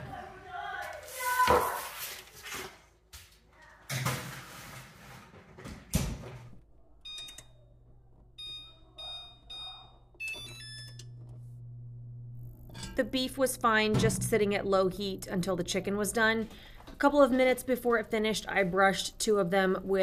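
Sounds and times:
low steady hum: 6.7 - 18.8
touch control panel beeping: 7.0 - 7.6, 8.4 - 11.3.

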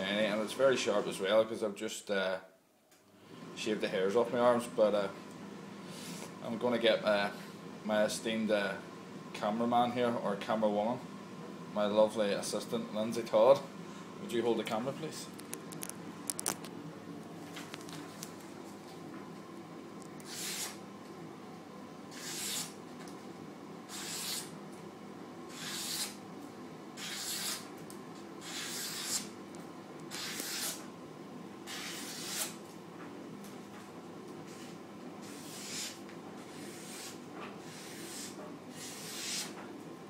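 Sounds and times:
knife slicing paper: 20.2 - 20.8, 22.1 - 22.8, 23.9 - 24.5, 25.5 - 26.2, 27.0 - 27.7, 28.4 - 29.3, 30.1 - 30.8, 31.7 - 32.6, 35.3 - 39.5.

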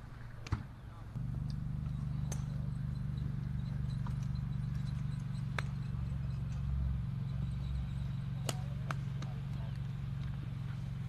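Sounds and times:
steady low hum: 0.0 - 11.0
golf club striking ball: 1.2 - 10.4.

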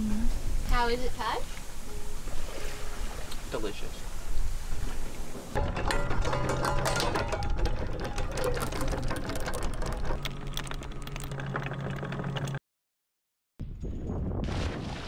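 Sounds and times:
anchor chain clattering: 5.6 - 12.6
low motor hum: 5.6 - 12.6.

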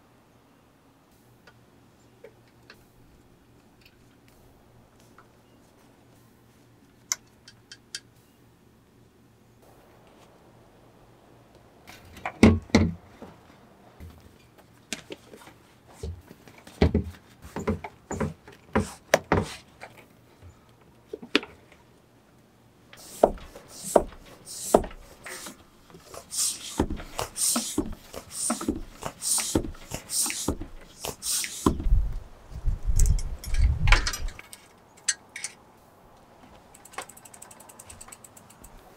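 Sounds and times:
floor pump hissing strokes: 15.2 - 19.7, 23.0 - 32.0
tyre rubbing on rim: 23.0 - 31.9.

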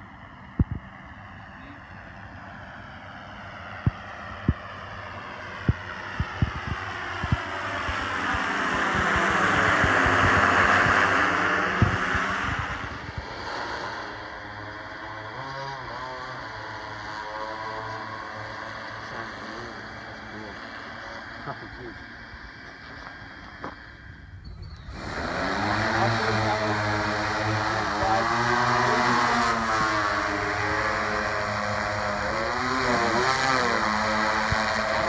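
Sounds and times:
drone propellers buzzing: 0.0 - 35.0.

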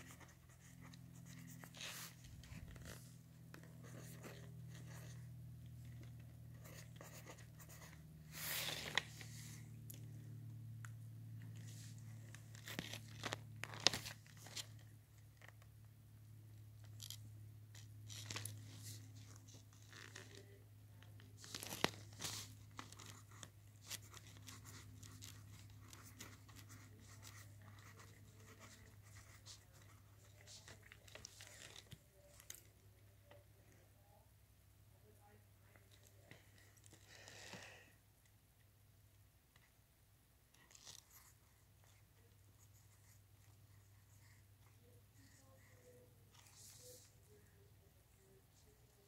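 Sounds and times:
pencil scratching on paper: 0.0 - 5.2, 6.4 - 9.0, 22.2 - 30.7.

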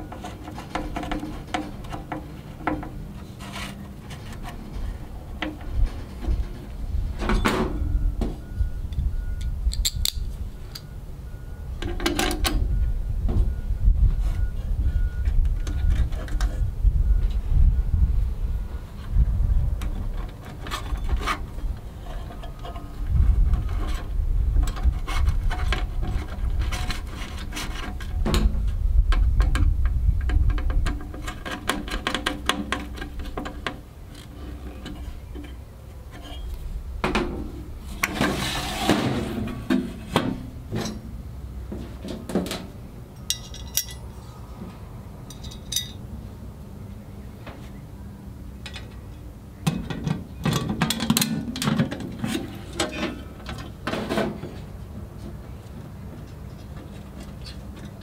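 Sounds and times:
metal rubbing scrape: 0.0 - 7.2, 20.0 - 28.8, 32.8 - 36.8, 37.8 - 41.0
metal parts clicking and clinking: 9.4 - 10.9, 43.2 - 44.1, 45.3 - 46.0.

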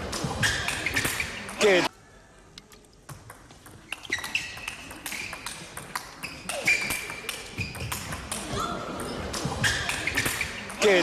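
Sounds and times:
ping pong ball clicking off paddles: 3.1 - 6.2.

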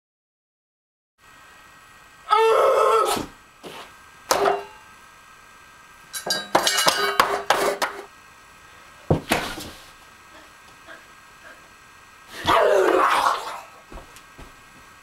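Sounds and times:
plate clattering on table: 6.2 - 8.0.

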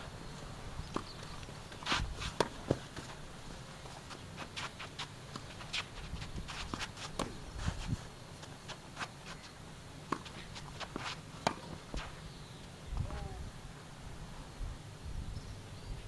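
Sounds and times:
racket hitting tennis ball: 0.9 - 3.1, 10.0 - 12.2
footsteps and shoe scuffs: 1.3 - 3.2, 3.8 - 9.5, 10.2 - 12.2.

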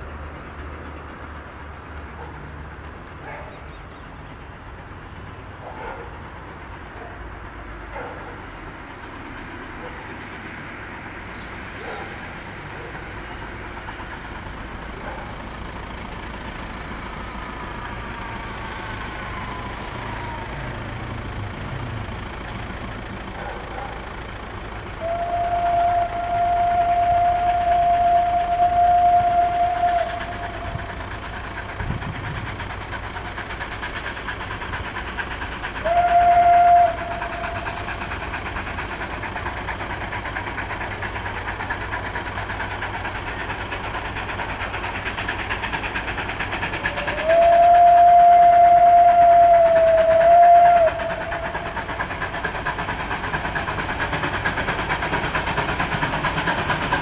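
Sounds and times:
train running noise: 0.0 - 57.0
steam locomotive whistle blasts: 25.0 - 31.0, 35.8 - 37.8, 47.0 - 51.8.

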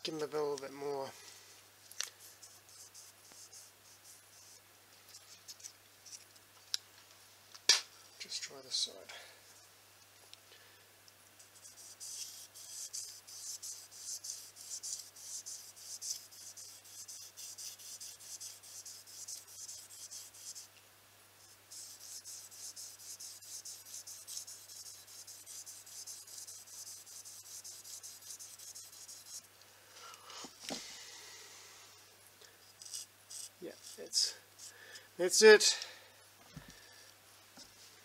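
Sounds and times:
knife sharpening on sandpaper: 32.8 - 34.7.

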